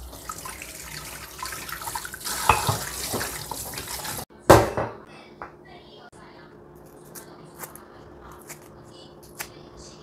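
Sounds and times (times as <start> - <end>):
tap water running into sink: 0.0 - 4.2.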